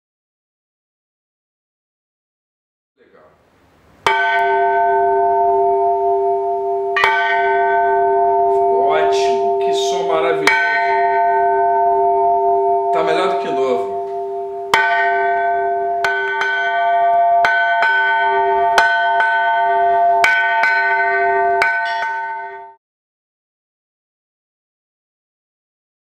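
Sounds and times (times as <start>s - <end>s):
church bell ringing: 4.1s - 22.8s.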